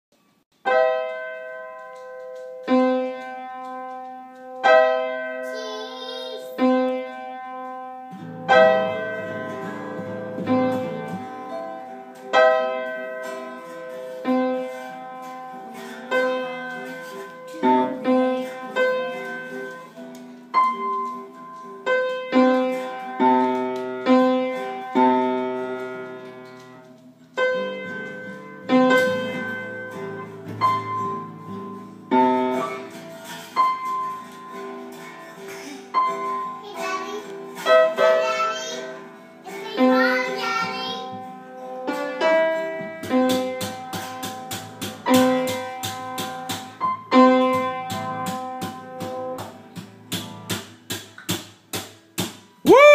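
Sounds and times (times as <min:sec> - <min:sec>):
piano chords and bass notes: 0:06.6 - 0:13.2.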